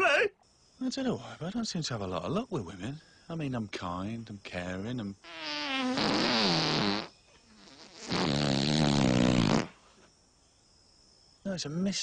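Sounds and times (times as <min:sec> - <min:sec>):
comedy fart sound effect: 0:05.3 - 0:09.8.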